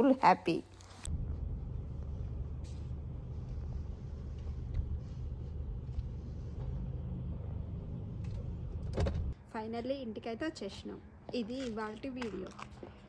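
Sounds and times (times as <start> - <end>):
car engine rumble inside cabin: 1.1 - 9.4.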